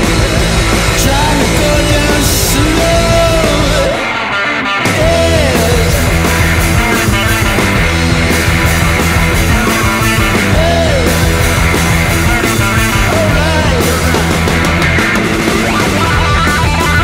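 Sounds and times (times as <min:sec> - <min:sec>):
heavy rock band playing: 0:00.0 - 0:17.0.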